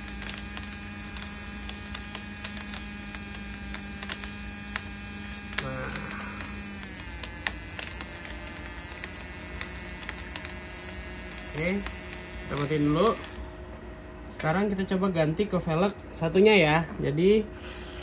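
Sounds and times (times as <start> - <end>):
small clicks and rattles: 0.0 - 13.5
small electric motor hum: 0.0 - 13.8.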